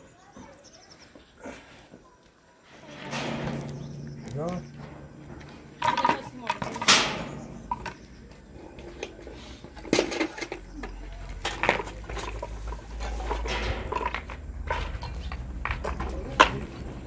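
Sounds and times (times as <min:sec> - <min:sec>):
steel trowel clinking and scraping: 0:02.7 - 0:16.5
concrete blocks set in place: 0:02.7 - 0:16.9
metal bucket knocks: 0:02.9 - 0:09.2.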